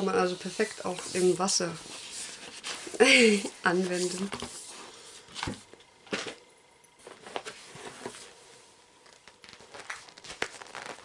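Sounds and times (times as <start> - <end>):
packaging rustling and crinkling: 9.0 - 11.0.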